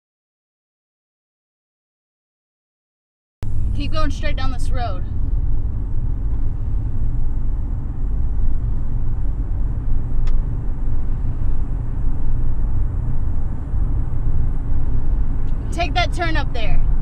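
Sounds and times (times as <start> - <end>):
van engine and road noise: 3.4 - 17.0
light click: 10.2 - 10.4.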